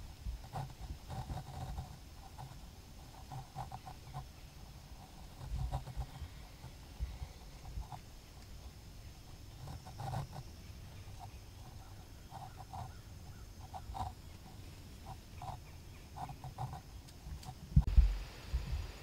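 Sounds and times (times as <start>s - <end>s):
low rumble: 17.8s - 19.0s.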